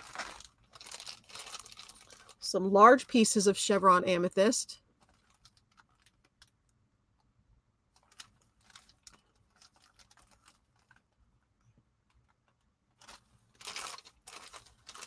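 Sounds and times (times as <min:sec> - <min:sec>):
plastic bag crinkling: 0:00.0 - 0:02.6, 0:05.0 - 0:06.6, 0:08.0 - 0:11.1, 0:13.0 - 0:15.0.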